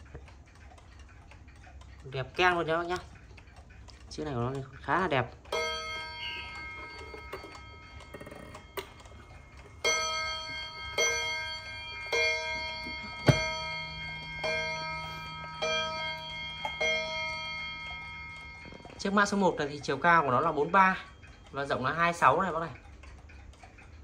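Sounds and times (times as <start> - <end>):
clock striking gongs: 4.8 - 22.9.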